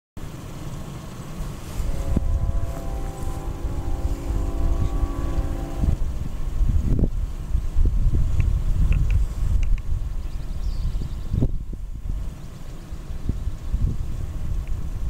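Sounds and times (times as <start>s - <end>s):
wind rumble on microphone: 1.4s - 15.0s
distant locomotive air horn: 1.6s - 6.4s.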